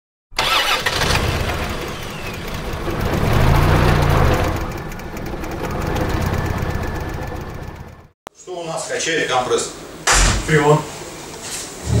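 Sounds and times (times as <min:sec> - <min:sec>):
engine starting and revving: 0:00.4 - 0:08.1.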